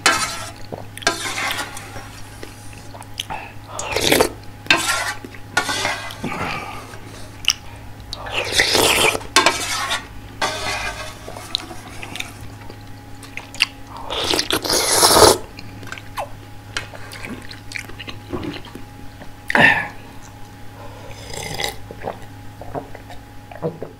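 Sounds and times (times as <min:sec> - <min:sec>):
slurping broth: 0:03.8 - 0:07.2, 0:08.2 - 0:12.5, 0:14.0 - 0:15.5
chewing: 0:11.5 - 0:14.7, 0:15.5 - 0:18.9.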